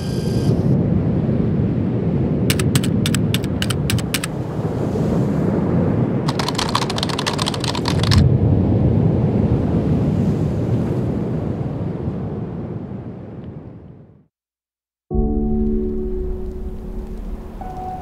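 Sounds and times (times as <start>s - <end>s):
rapid sharp clicks: 2.5s - 4.3s, 6.3s - 8.2s.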